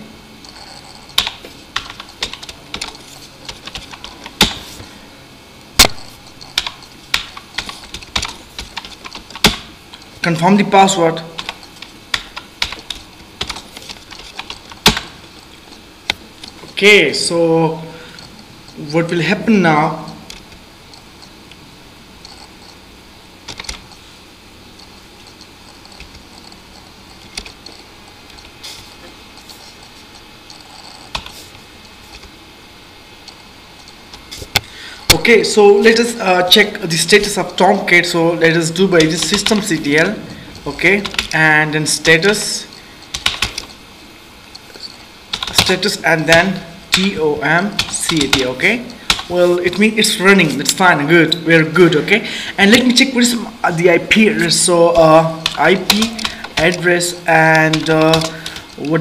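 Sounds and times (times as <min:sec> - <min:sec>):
hard keystrokes: 0:00.6 - 0:04.8, 0:05.8 - 0:10.2, 0:11.3 - 0:15.3, 0:23.5 - 0:24.0, 0:24.8 - 0:28.5, 0:30.5 - 0:31.5, 0:38.7 - 0:43.8, 0:45.3 - 0:50.1, 0:55.0 - 0:58.9.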